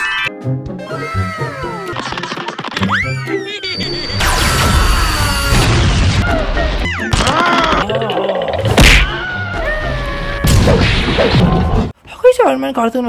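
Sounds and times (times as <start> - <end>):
cartoon action music: 0.0 - 11.9.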